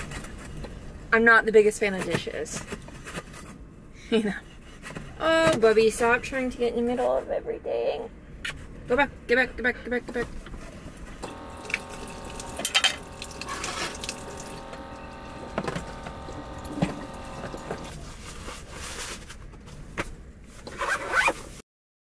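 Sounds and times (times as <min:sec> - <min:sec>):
steady stove hum: 0:11.2 - 0:18.2.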